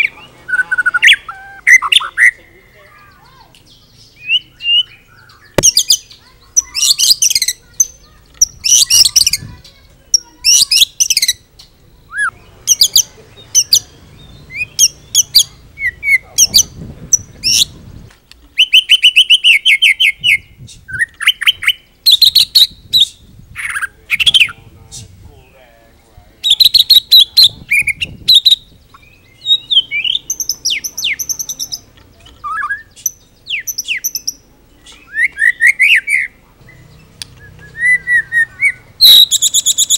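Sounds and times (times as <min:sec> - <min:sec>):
songbird singing whistles and trills: 0:00.0 - 0:24.6, 0:26.4 - 0:39.9.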